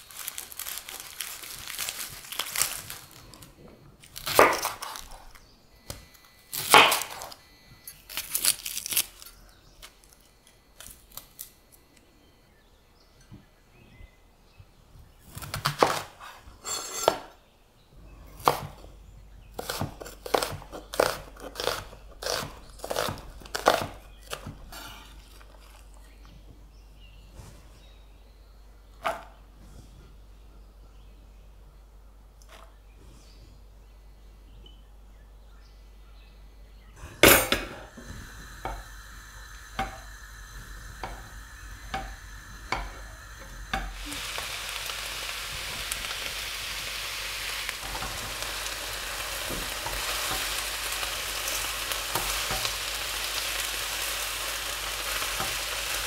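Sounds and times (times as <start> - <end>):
onion skins crackling and tearing: 0.0 - 12.0, 19.6 - 26.3, 38.2 - 56.0.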